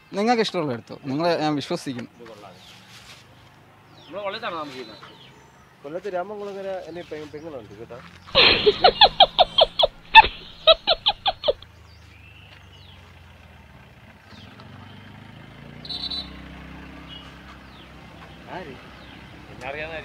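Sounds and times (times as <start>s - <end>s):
roadside background noise: 0.0s - 20.0s
laughter sound effect: 8.4s - 11.6s.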